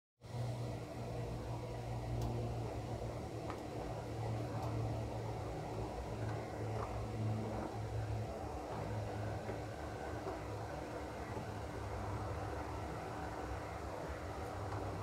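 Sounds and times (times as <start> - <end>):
model locomotive motor hum: 0.3 - 15.0
faint clicks from track: 2.1 - 2.8, 3.4 - 13.4, 14.0 - 15.0.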